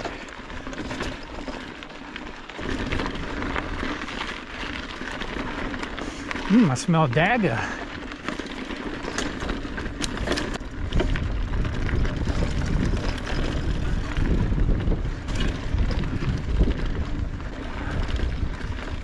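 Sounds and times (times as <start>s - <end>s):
bike clicking and rattling: 0.0s - 19.0s
wind on microphone: 10.8s - 19.0s.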